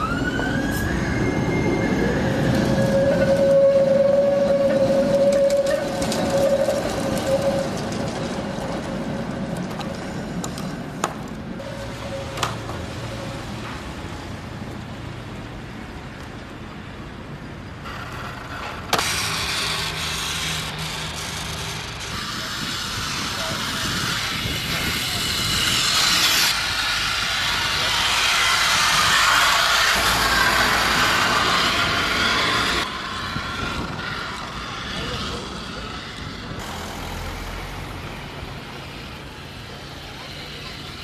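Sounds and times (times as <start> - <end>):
tram passing with whine: 0.0 - 41.0
loud rushing noise: 18.9 - 40.1.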